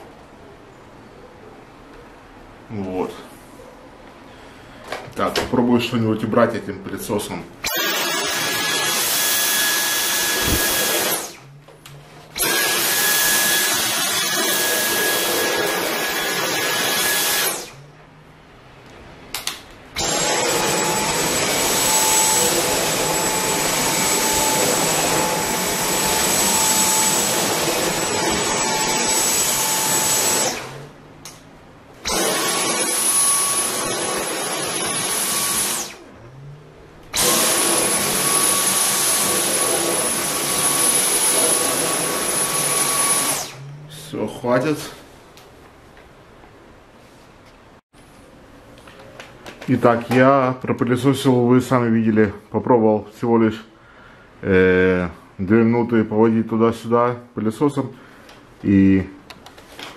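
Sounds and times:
vacuum cleaner suction hiss: 0:07.7 - 0:11.4, 0:12.4 - 0:17.8, 0:20.0 - 0:30.9, 0:32.1 - 0:36.0, 0:37.2 - 0:43.6.

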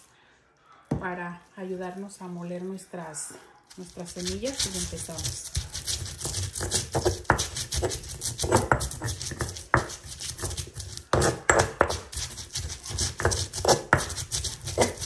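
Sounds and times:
stone pestle grinding in mortar: 0:03.7 - 0:15.0.

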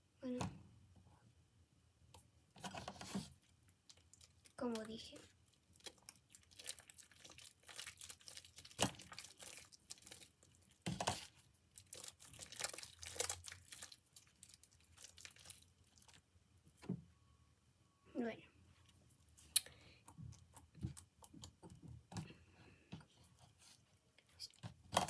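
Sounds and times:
slime crackling and popping: 0:03.5 - 0:16.2.

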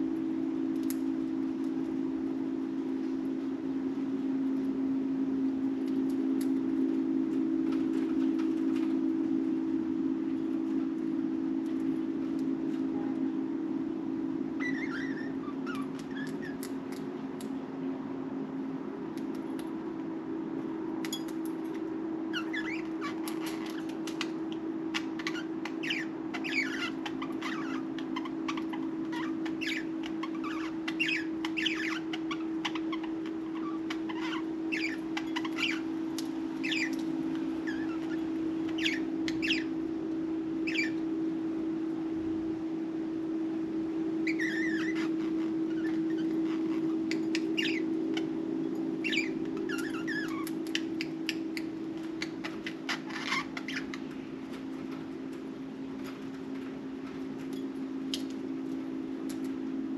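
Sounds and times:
steady low hum: 0:00.0 - 0:59.9
budgerigars chirping: 0:25.0 - 0:35.8, 0:36.6 - 0:37.0, 0:37.7 - 0:39.7, 0:40.7 - 0:41.0, 0:47.1 - 0:47.9, 0:49.0 - 0:51.4, 0:52.2 - 0:54.0.

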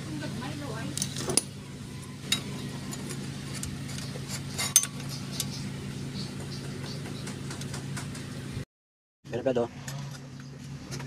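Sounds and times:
steady low hum: 0:00.0 - 0:08.6.

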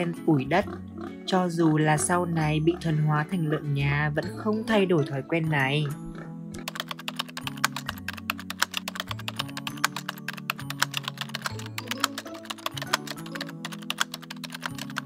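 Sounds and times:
sharp clicks like typing: 0:06.6 - 0:15.0.

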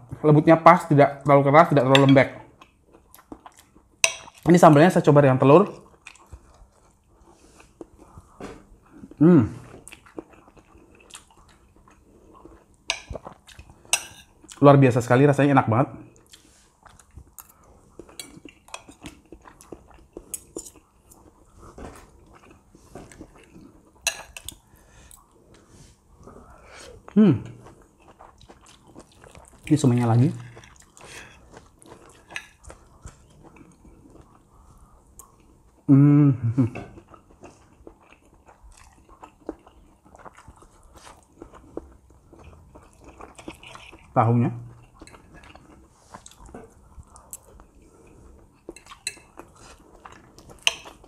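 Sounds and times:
quiet chewing: 0:05.7 - 0:14.6, 0:16.1 - 0:35.9, 0:36.6 - 0:51.0
cutlery clinking on a plate: 0:24.1 - 0:24.5, 0:50.6 - 0:51.0.

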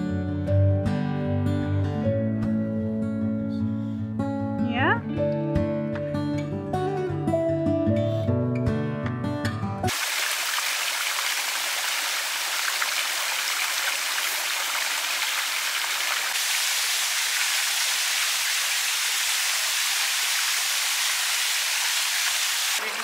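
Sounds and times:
stream water flowing: 0:09.9 - 0:23.0.

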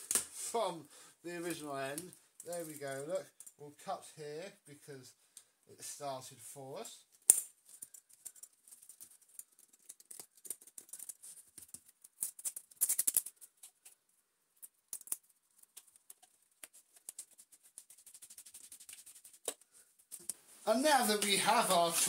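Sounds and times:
adhesive tape crackling: 0:07.1 - 0:14.0, 0:14.6 - 0:20.4.

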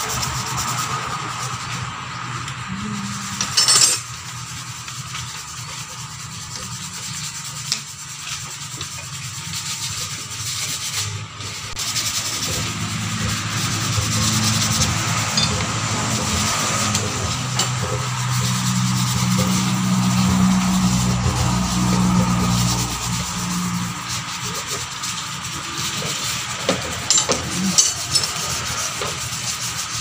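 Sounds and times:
sandpaper rubbing engine parts: 0:00.0 - 0:30.0
low steady hum: 0:02.4 - 0:04.3.

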